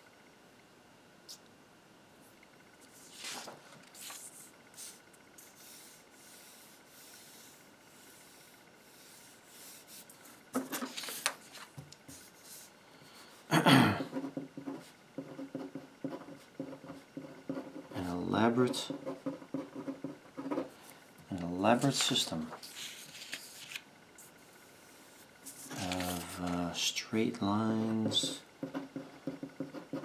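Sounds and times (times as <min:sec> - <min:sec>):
paper rustling and sliding: 0:02.8 - 0:06.0, 0:09.7 - 0:12.7, 0:21.8 - 0:26.6.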